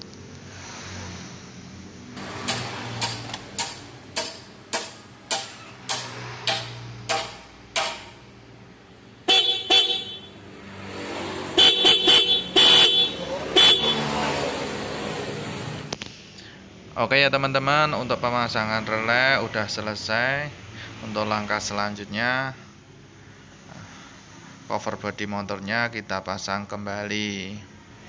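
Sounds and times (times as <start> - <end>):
motorcycle horn honking: 9.2 - 10.4, 11.6 - 14.2.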